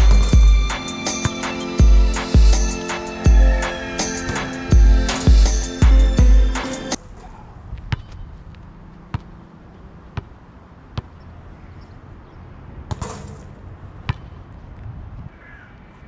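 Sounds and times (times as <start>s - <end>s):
background music: 0.0s - 7.0s
basketball bouncing on asphalt: 7.7s - 11.2s, 12.8s - 14.5s.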